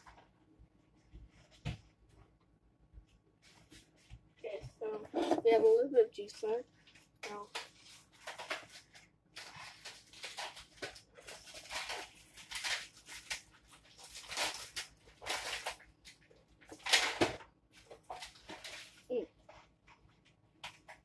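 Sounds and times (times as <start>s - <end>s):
spoon scraping fruit pulp: 5.0s - 5.6s.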